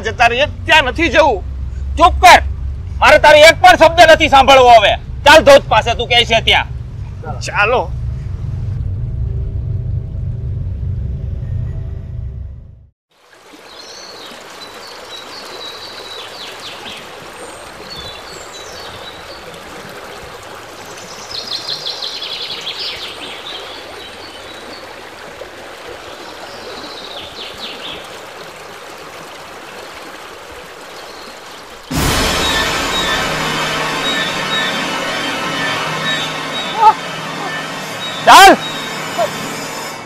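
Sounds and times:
stream trickling over rocks: 13.1s - 31.9s
birds calling: 30.9s - 39.9s
loud music: 31.9s - 40.0s.

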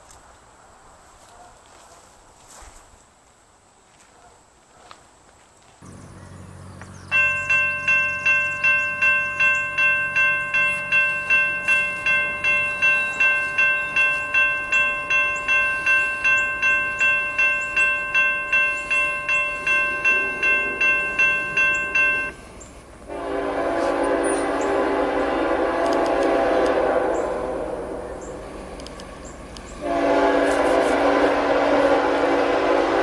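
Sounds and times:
railroad crossing bell ringing: 5.9s - 33.0s
locomotive horn: 23.1s - 28.8s, 29.8s - 33.0s.

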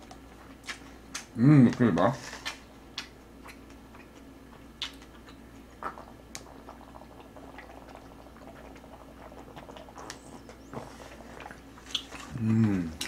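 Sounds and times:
person swallowing: 11.4s - 13.0s.

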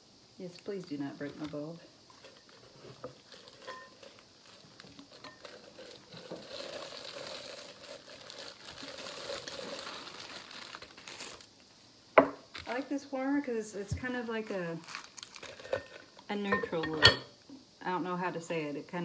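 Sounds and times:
packaging crinkling: 0.5s - 11.8s, 14.0s - 16.2s.

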